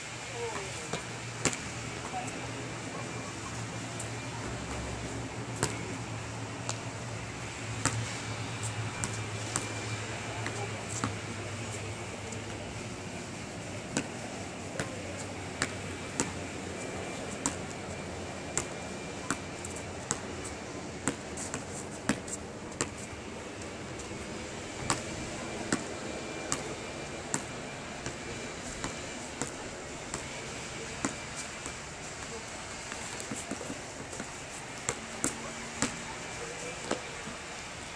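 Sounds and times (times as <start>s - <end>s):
steady outdoor hum: 0.0s - 37.9s
basketball bouncing on asphalt: 0.5s - 2.2s, 5.6s - 6.0s, 7.8s - 11.3s, 13.9s - 14.2s, 14.8s - 15.0s, 15.6s - 16.4s, 17.4s - 17.8s, 18.5s - 24.1s, 24.8s - 36.1s, 36.8s - 37.3s.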